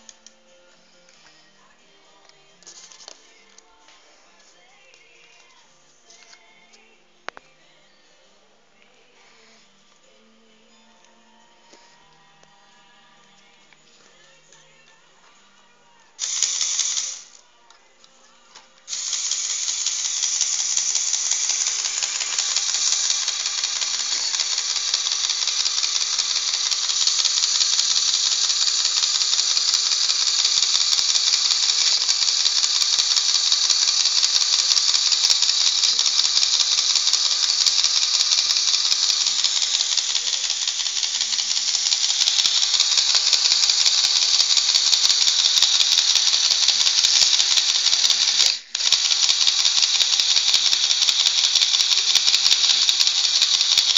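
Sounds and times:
toy motor gears rattling: 0:16.2 - 0:17.4, 0:18.9 - 0:53.9.

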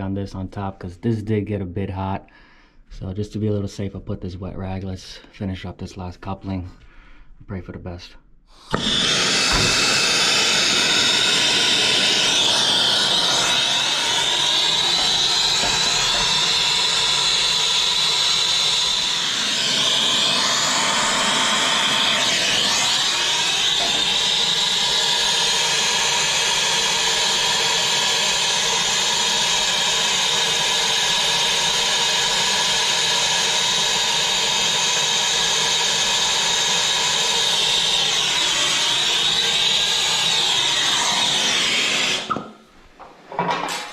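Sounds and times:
torch flame hissing: 0:08.6 - 0:42.6.

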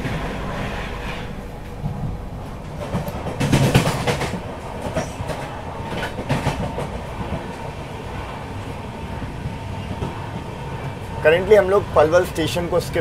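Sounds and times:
train wheels rumbling on rail: 0:00.0 - 0:13.0
clattering wheel clacks: 0:01.8 - 0:07.5.

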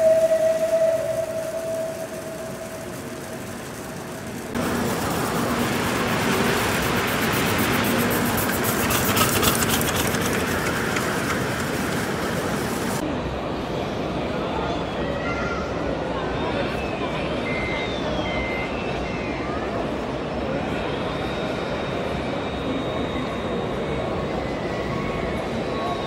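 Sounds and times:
model train wheels rumbling: 0:00.0 - 0:13.1.

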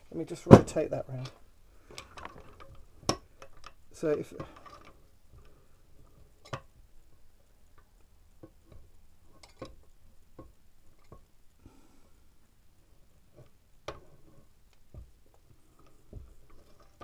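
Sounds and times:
parts handled on a bench: 0:00.4 - 0:06.8, 0:13.3 - 0:17.0.

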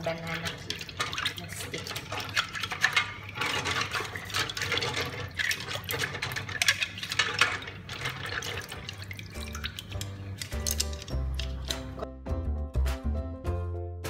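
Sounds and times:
tap water running into sink: 0:00.0 - 0:12.0.

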